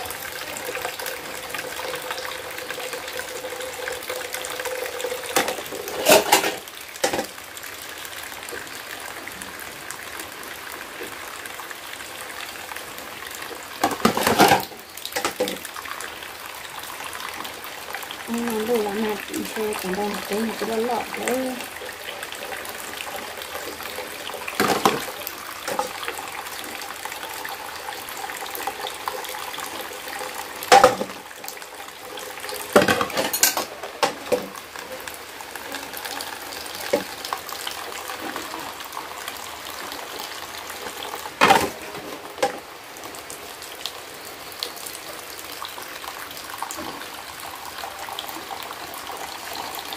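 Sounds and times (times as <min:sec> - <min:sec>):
tap water running into basin: 0:00.0 - 0:49.9
dishes clinking: 0:05.3 - 0:07.3
dishes being scrubbed: 0:05.4 - 0:07.2.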